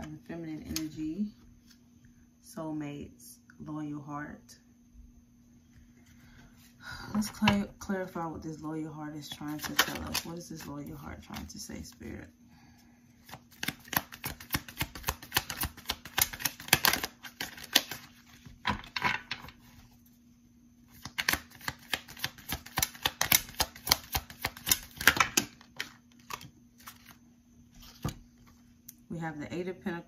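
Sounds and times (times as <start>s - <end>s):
cards being shuffled: 9.3s - 11.5s, 13.2s - 18.6s, 20.9s - 28.6s
cards snapping: 13.2s - 18.1s, 20.9s - 27.1s.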